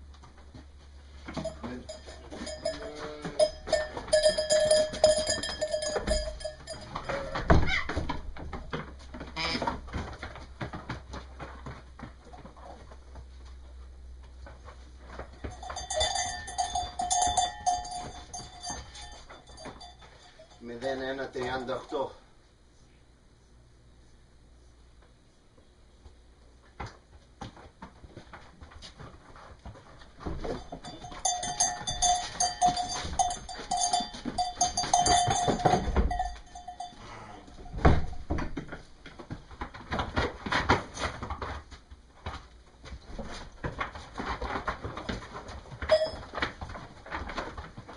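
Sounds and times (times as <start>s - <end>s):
sheep shuffling and knocking: 0.0s - 21.9s, 26.1s - 47.9s
hoof and board knocks: 0.4s - 12.6s, 26.8s - 36.8s, 37.6s - 47.9s
ewe bleating: 9.4s - 9.6s.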